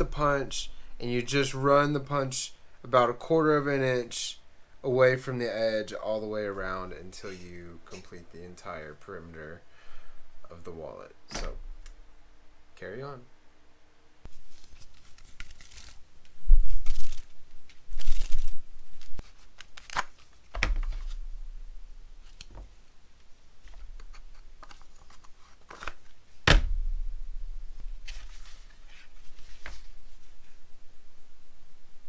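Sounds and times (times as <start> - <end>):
sharp knock: 26.5 - 28.2.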